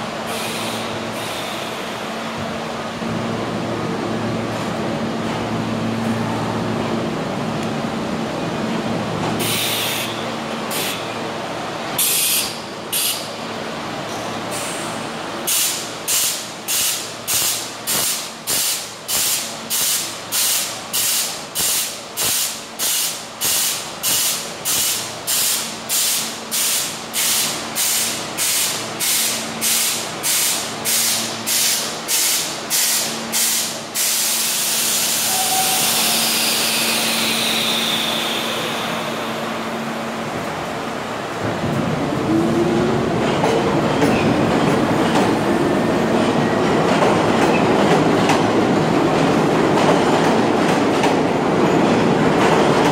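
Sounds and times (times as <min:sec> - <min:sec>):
compressed air hissing: 0:15.5 - 0:39.4.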